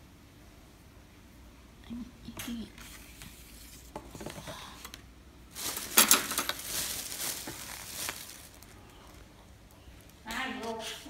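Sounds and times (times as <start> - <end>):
foam boxes rustling: 5.5 - 9.3.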